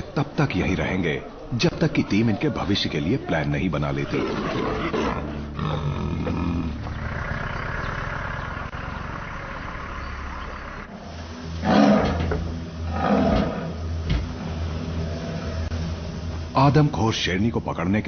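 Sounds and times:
lion snarling: 0:04.0 - 0:08.7
steady low hum: 0:05.2 - 0:17.9.

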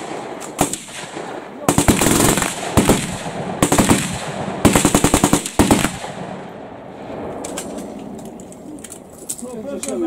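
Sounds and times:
automatic gunfire: 0:00.0 - 0:06.4
heavy gunshot: 0:00.0 - 0:07.4.

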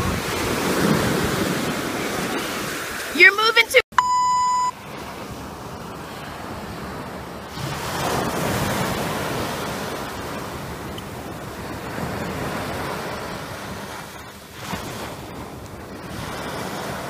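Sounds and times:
surf washing onto beach: 0:00.0 - 0:17.0
short electronic beep: 0:03.9 - 0:04.8.

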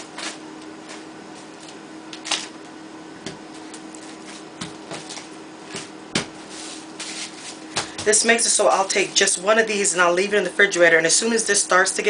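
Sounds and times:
plastic cling wrap crinkling: 0:06.4 - 0:07.9.

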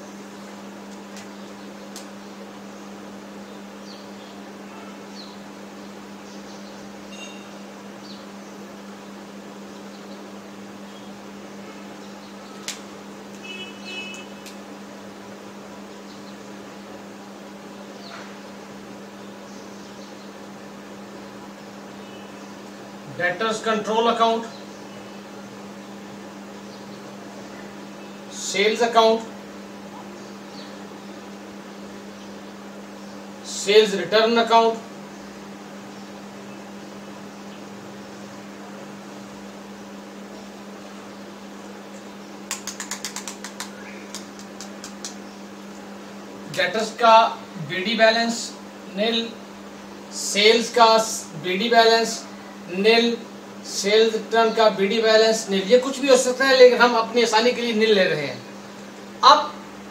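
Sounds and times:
room tone hum and hiss: 0:00.0 - 0:59.9
sharp clicks: 0:01.9 - 0:02.1, 0:12.6 - 0:13.4, 0:42.0 - 0:45.3.

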